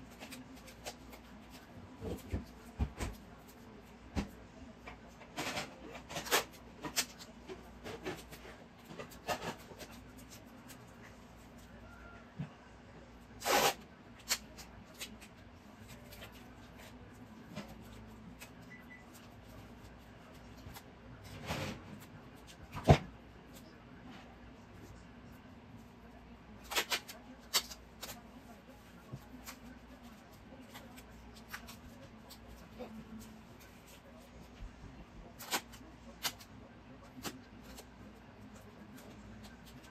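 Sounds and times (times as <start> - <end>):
duct tape ripping off roll: 13.4 - 14.4.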